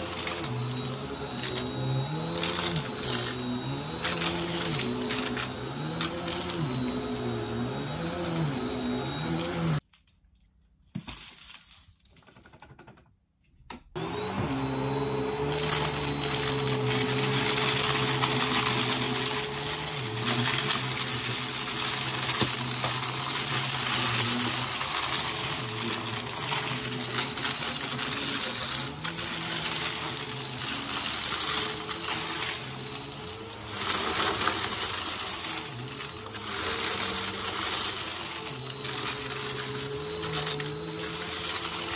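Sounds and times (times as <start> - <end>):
vacuum cleaner running: 0.0 - 9.8, 14.0 - 41.9.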